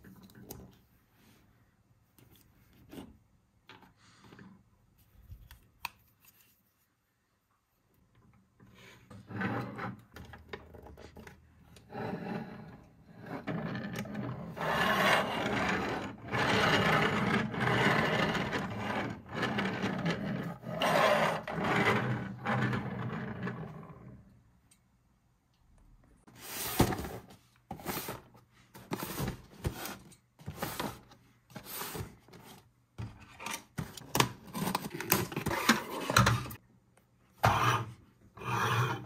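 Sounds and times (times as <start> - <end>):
toy car wheels rolling on table: 11.8 - 24.2.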